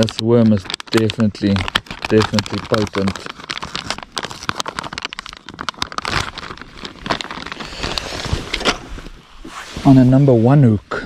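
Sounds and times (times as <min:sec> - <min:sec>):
plastic packet crinkling: 0:00.0 - 0:08.8.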